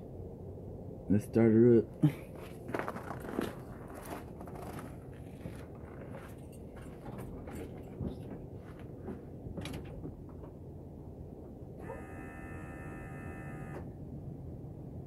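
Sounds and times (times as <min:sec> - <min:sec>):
footsteps crunching on snow: 0:02.1 - 0:07.0.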